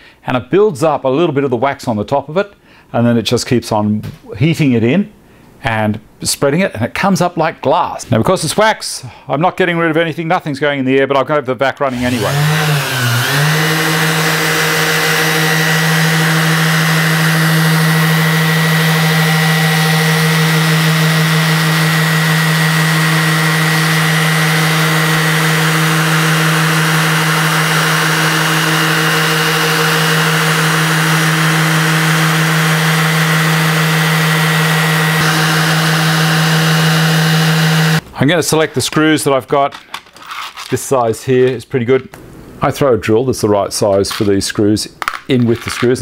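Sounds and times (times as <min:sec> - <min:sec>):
dust extractor hum: 0:11.9 - 0:38.0
orbital sander running: 0:11.9 - 0:38.0.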